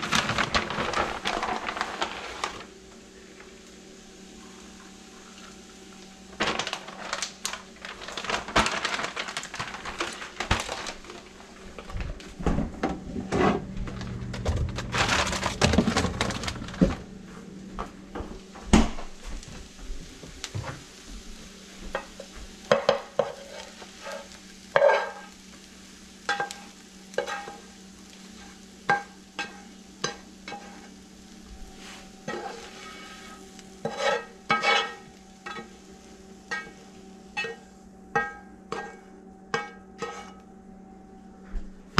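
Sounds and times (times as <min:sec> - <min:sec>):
eggs sizzling in a frying pan: 0:00.0 - 0:11.8, 0:19.1 - 0:40.4
spatula scraping a pan: 0:22.0 - 0:25.4, 0:26.2 - 0:27.7, 0:28.3 - 0:31.0, 0:31.7 - 0:35.8, 0:36.5 - 0:36.8, 0:37.4 - 0:37.6, 0:38.2 - 0:40.4
spatula clacking against a pan: 0:38.2 - 0:40.3.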